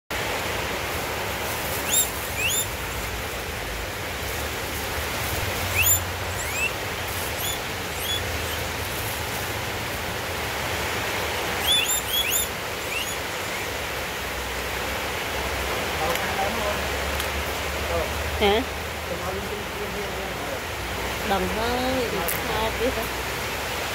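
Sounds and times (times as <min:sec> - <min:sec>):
steady background hiss: 0:00.2 - 0:23.9
short high rising chirps: 0:05.7 - 0:06.8, 0:11.6 - 0:13.2.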